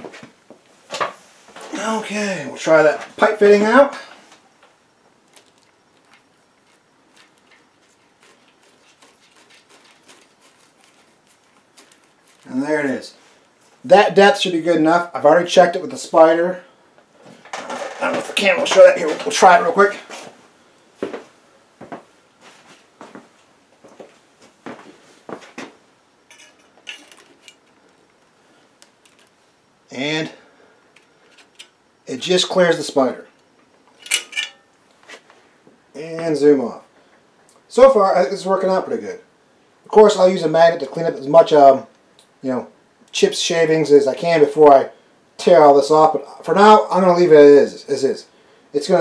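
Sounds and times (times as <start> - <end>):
metal tools clinking: 26.3 - 27.8, 31.0 - 31.8, 33.9 - 34.8
metal fitting clicking and scraping: 31.0 - 31.8, 33.9 - 34.7.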